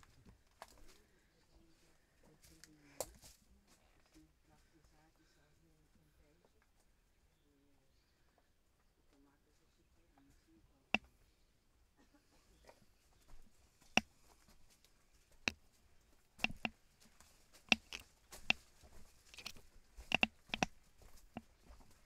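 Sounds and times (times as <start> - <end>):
footsteps on rocky trail: 16.4 - 22.0.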